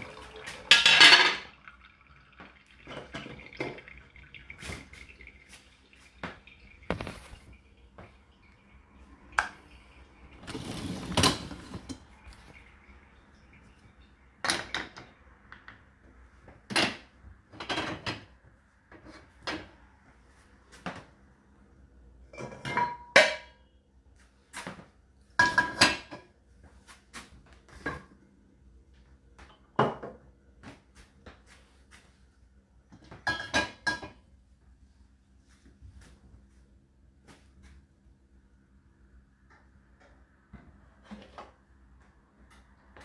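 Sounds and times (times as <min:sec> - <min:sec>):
dishes clinking against racks: 0:00.7 - 0:01.6, 0:22.3 - 0:23.6, 0:33.0 - 0:34.2
dish scraping on rack: 0:10.4 - 0:12.0.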